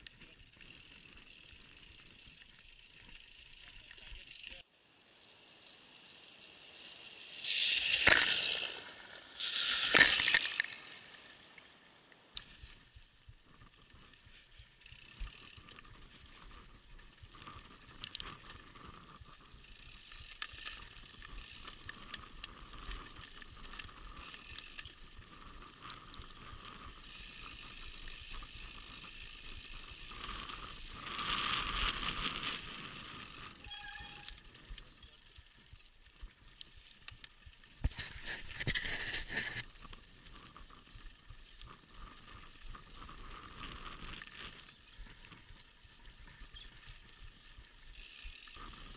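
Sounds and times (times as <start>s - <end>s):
bike tyres on dirt track: 0.0s - 48.9s
bike tyres rushing through puddle: 5.0s - 11.6s
bike frame rattle: 19.5s - 35.2s.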